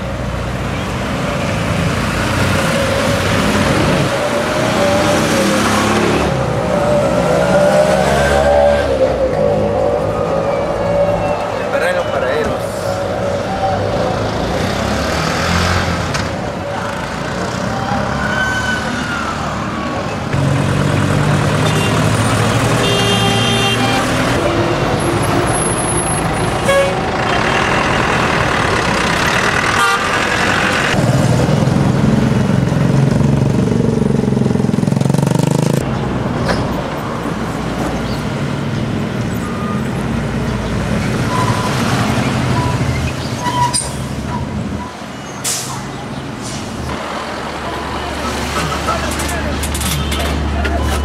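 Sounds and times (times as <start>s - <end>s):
buses passing: 0.0s - 51.0s
engine rumble: 24.1s - 51.0s.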